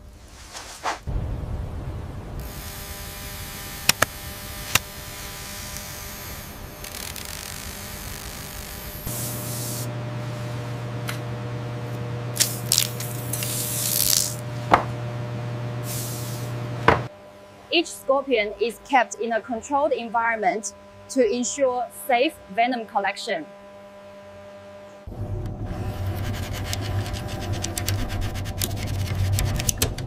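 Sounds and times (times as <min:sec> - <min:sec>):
steady low hum: 0:01.1 - 0:30.0
sharp clicks: 0:03.9 - 0:04.1
spray bottle squirts: 0:12.4 - 0:14.4.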